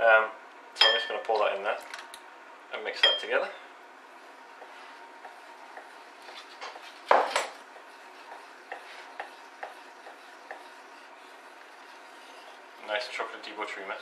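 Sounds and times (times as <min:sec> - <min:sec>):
spoon scraping a bowl: 0:07.8 - 0:12.9.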